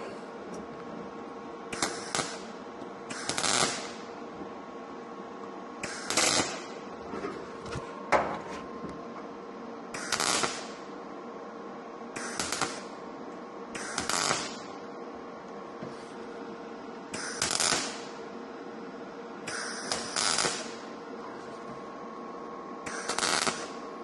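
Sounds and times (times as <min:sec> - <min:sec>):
welder crackling: 0:01.7 - 0:04.4, 0:05.8 - 0:07.0, 0:10.0 - 0:10.8, 0:12.2 - 0:13.0, 0:13.8 - 0:14.8, 0:17.1 - 0:18.2, 0:19.4 - 0:20.9, 0:22.8 - 0:23.9.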